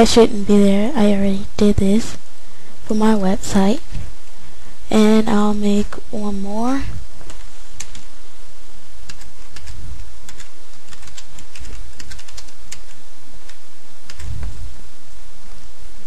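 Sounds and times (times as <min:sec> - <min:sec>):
background hiss: 0:00.0 - 0:16.0.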